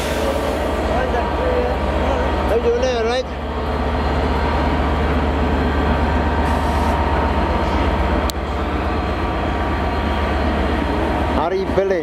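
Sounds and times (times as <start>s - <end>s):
train running slowly: 0.0s - 12.0s.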